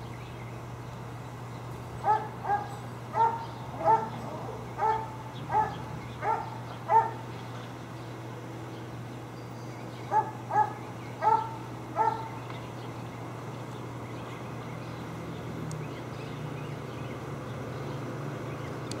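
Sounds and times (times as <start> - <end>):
steady low hum: 0.0 - 19.0
dog barking: 2.0 - 7.2, 10.1 - 12.3.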